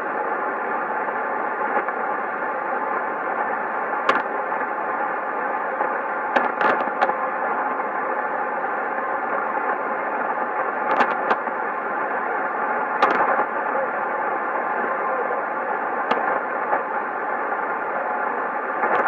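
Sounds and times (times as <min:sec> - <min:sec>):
radio band noise hiss: 0:00.0 - 0:19.0
sharp static crashes: 0:03.9 - 0:04.6, 0:06.2 - 0:07.2, 0:12.9 - 0:13.8.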